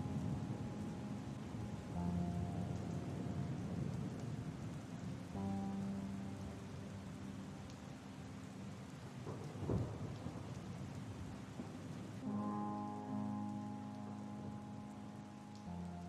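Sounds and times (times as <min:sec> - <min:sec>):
held music chord: 0:00.0 - 0:09.3, 0:12.2 - 0:16.0
steady rain: 0:00.0 - 0:16.0
thunder rumble: 0:09.0 - 0:12.5.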